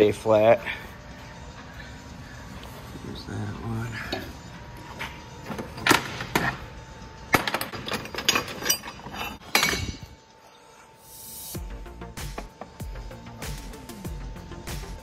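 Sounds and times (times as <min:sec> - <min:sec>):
metal clamps clanking: 0:07.3 - 0:10.2.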